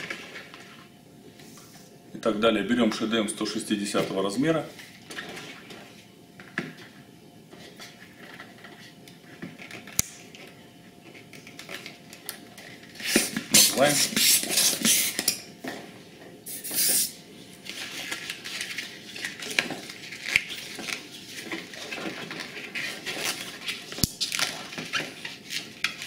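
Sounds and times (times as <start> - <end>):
hand pump air rushes: 13.0 - 15.2.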